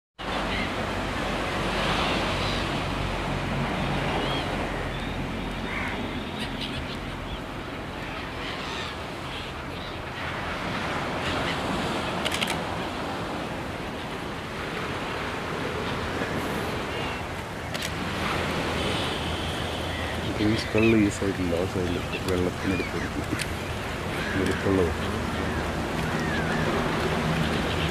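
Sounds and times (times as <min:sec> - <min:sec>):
waves breaking on beach: 0:00.2 - 0:27.9.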